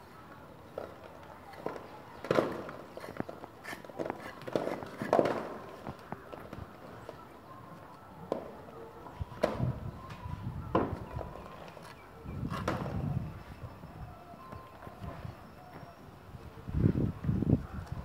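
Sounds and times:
trowel scraping wet cement: 2.8 - 5.3.

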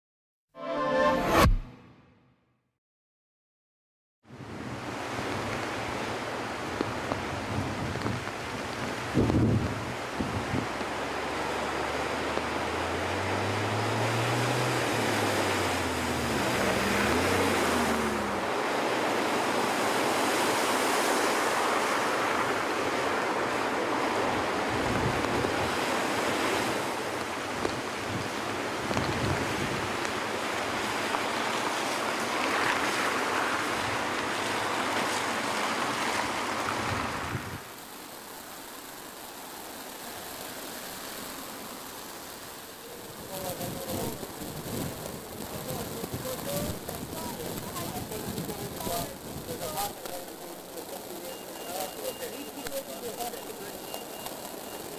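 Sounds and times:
floodwater rushing and splashing: 4.3 - 54.9
wet road noise: 4.3 - 54.9
wind on microphone: 6.8 - 10.9, 24.3 - 26.8, 27.5 - 30.0, 36.7 - 37.7, 43.4 - 49.7
vehicle engine: 10.8 - 19.8.

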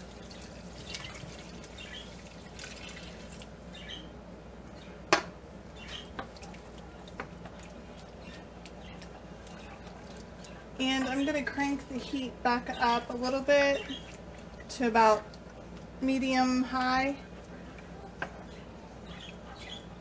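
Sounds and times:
wooden spoon stirring liquid: 5.9 - 19.5.

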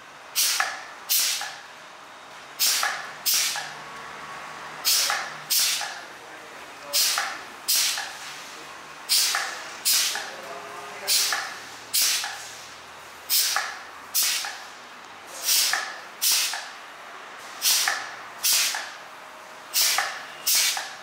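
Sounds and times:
compressed air hissing: 0.3 - 1.6, 2.6 - 3.7, 4.8 - 6.0, 6.9 - 8.4, 9.1 - 10.3, 11.1 - 16.8, 17.4 - 19.0, 19.7 - 21.0.

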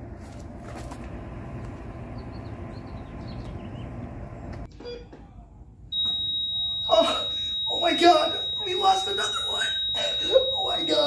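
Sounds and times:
distant traffic rumble: 0.0 - 4.7.

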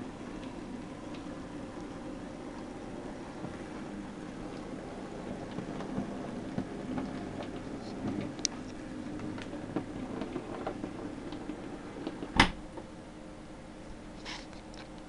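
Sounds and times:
wheels clicking on rails: 0.0 - 12.9.

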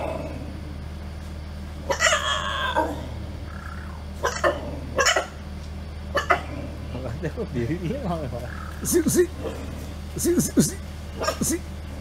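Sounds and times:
dog squealing call: 1.9 - 5.4, 6.1 - 6.4, 11.2 - 11.4
dog barking: 4.2 - 5.4, 6.1 - 6.6, 11.2 - 11.6.

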